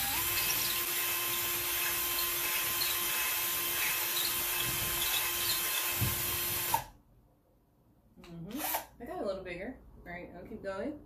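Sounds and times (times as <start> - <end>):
cordless drill grinding into drywall: 0.0 - 7.0.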